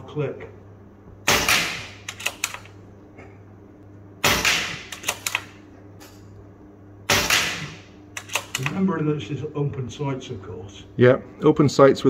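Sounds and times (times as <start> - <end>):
air rifle shots: 1.3 - 2.6, 4.2 - 5.6, 7.1 - 8.7
rifle bolt clicks: 2.1 - 2.7, 8.2 - 8.7.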